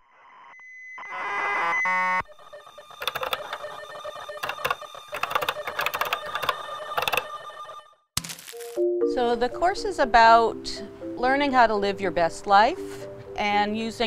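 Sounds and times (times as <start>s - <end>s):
typewriter key clicks: 3.0s - 3.5s.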